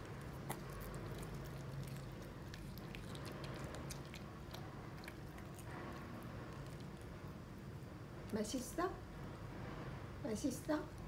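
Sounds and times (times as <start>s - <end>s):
dog chewing: 0.0s - 7.6s.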